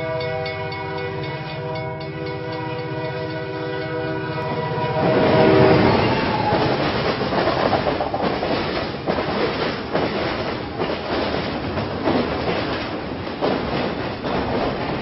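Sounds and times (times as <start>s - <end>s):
train rumbling on rails: 0.0s - 15.0s
train wheel clatter: 4.4s - 15.0s.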